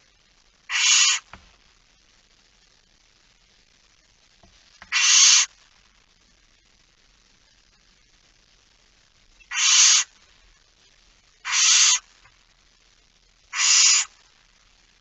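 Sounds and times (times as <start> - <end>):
owl harsh hissing calls: 0.7 - 1.4, 4.9 - 5.6, 9.4 - 10.2, 11.4 - 12.2, 13.5 - 14.2.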